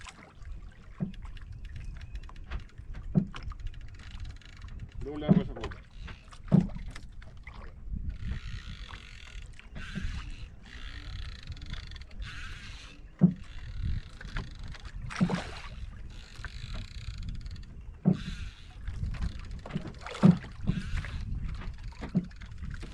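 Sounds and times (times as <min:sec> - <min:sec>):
water slapping against boat hull: 0:00.0 - 0:22.9
wind rumble on microphone: 0:00.0 - 0:22.9
knocks against boat: 0:02.4 - 0:03.6, 0:04.9 - 0:07.1, 0:13.2 - 0:15.5, 0:18.0 - 0:18.4, 0:19.0 - 0:22.9.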